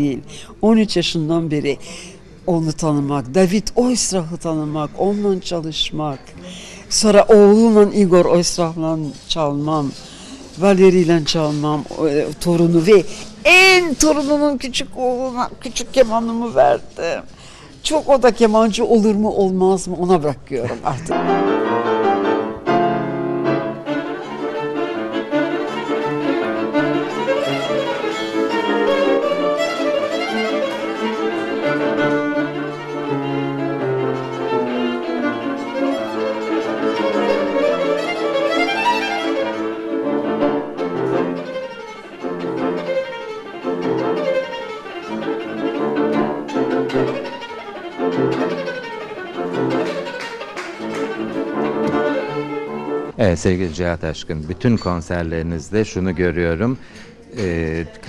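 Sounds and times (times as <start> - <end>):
fast classical violin: 21.1 - 53.2.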